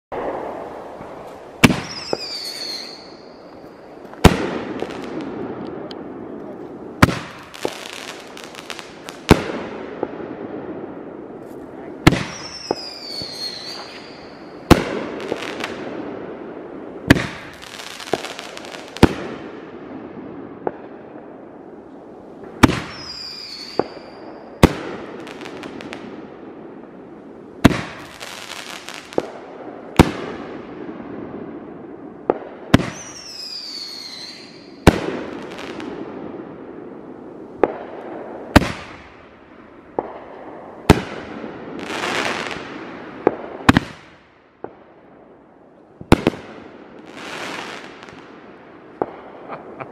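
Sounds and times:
firework bangs: 0.1s - 21.4s, 22.4s - 27.0s, 27.6s - 44.8s, 46.0s - 49.9s
falling firework whistle: 1.7s - 3.8s, 12.2s - 14.7s, 22.6s - 24.5s, 32.9s - 34.8s.

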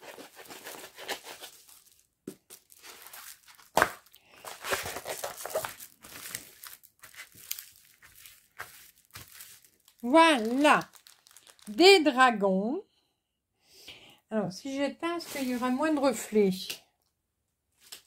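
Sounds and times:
plastic film crinkling: 0.0s - 12.2s, 15.2s - 16.2s.

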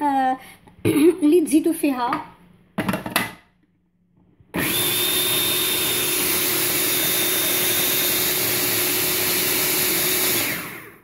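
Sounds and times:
blender grinding seeds: 4.6s - 11.0s.

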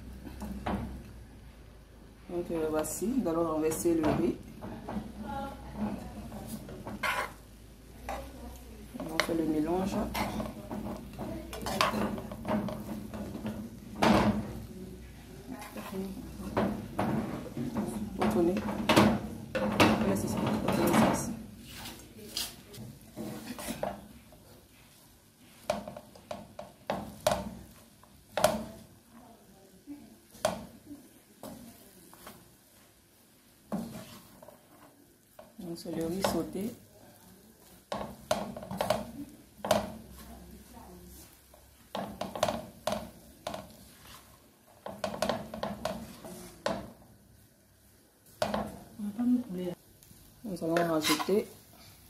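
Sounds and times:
wooden spatula scraping frying pan: 2.8s - 28.9s, 33.6s - 36.6s, 37.6s - 47.0s, 50.6s - 52.0s.

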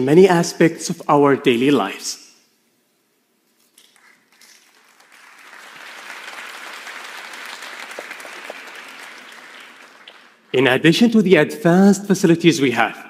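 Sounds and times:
audience applause: 4.0s - 10.5s.

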